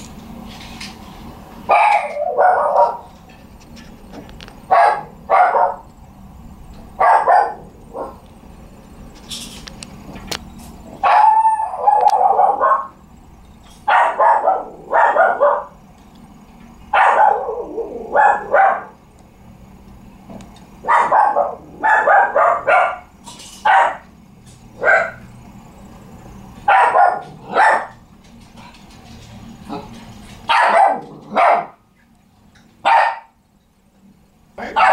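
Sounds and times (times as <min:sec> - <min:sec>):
dog barking: 0:01.7 - 0:03.1, 0:04.7 - 0:05.8, 0:07.0 - 0:08.2, 0:11.0 - 0:13.0, 0:13.9 - 0:15.8, 0:16.9 - 0:19.0, 0:20.8 - 0:24.1, 0:24.8 - 0:25.3, 0:26.7 - 0:28.0, 0:30.5 - 0:31.8, 0:32.8 - 0:33.4, 0:34.6 - 0:34.9.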